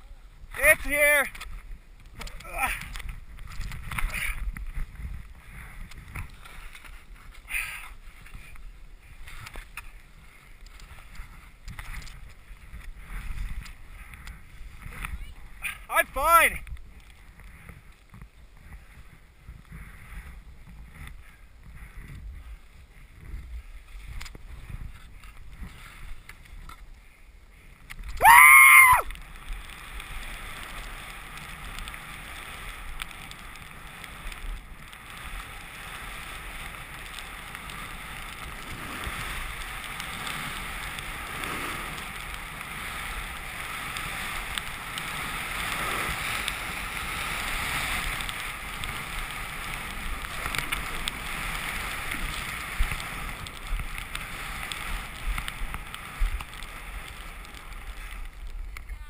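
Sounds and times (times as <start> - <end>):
skis hissing through snow: 2.4 - 59.0
loud shout: 28.2 - 29.0.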